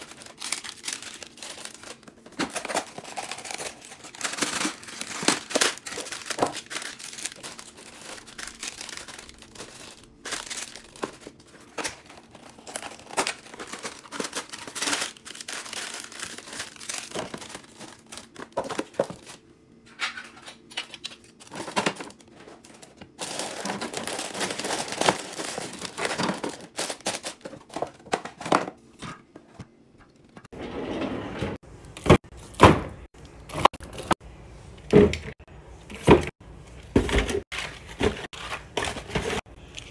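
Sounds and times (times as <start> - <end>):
plastic snack bags rustling: 0.0 - 19.4, 20.4 - 28.7, 36.9 - 39.9.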